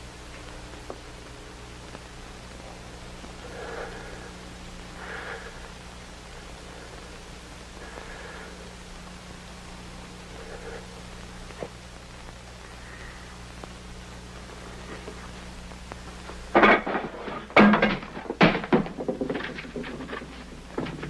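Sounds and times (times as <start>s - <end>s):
film soundtrack hum: 0.0s - 21.0s
thuds and clatters on wood: 16.5s - 21.0s.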